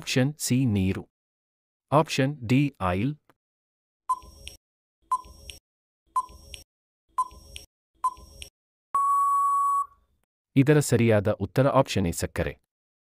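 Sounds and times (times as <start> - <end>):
long steady beep: 9.0 - 10.0
short electronic beeps: 9.0 - 10.0.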